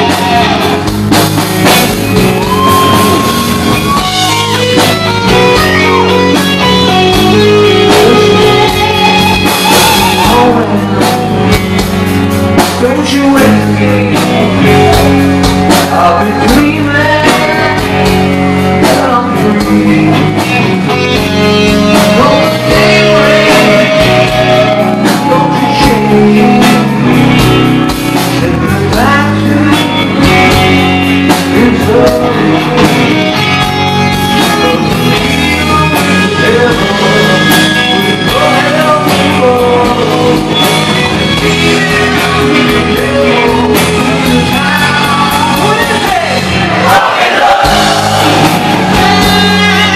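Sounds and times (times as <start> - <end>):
drum kit: 0.0 - 49.9
electric guitar: 0.0 - 49.9
male singer singing: 7.4 - 8.9, 9.8 - 11.6, 12.6 - 21.0, 21.9 - 27.4, 28.2 - 33.5, 34.4 - 49.9.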